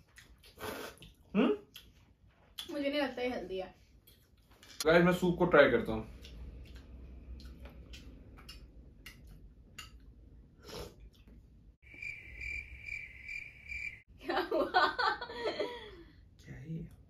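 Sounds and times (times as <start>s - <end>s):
cricket chirping sound effect: 11.8s - 14.1s.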